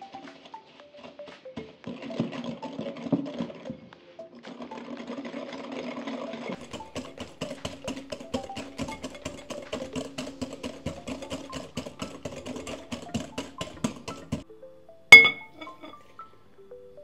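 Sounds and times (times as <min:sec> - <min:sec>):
glass clink: 0:15.1 - 0:16.3.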